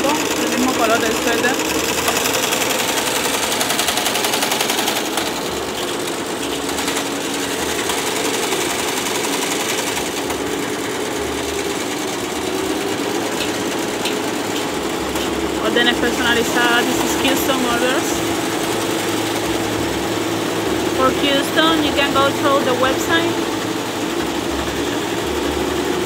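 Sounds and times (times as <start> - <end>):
embroidery machine needle clatter: 0.0 - 26.0.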